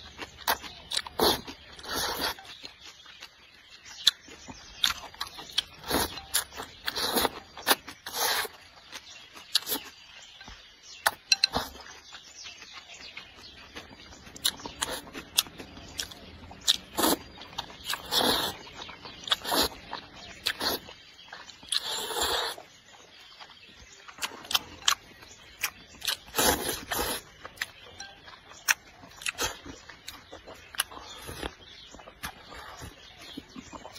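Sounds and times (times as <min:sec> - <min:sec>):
chewing and lip smacks: 0:00.0 - 0:33.9
slurping noodles: 0:01.0 - 0:02.5, 0:05.7 - 0:08.7, 0:16.7 - 0:21.0, 0:21.7 - 0:22.7, 0:26.1 - 0:27.4.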